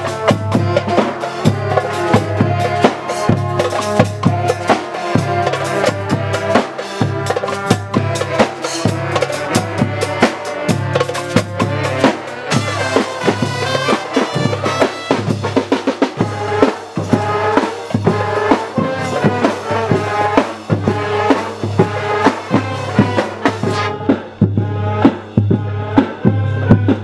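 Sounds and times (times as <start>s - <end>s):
steady drum beat: 0.0s - 27.0s
trombones and saxophone playing: 0.0s - 27.0s.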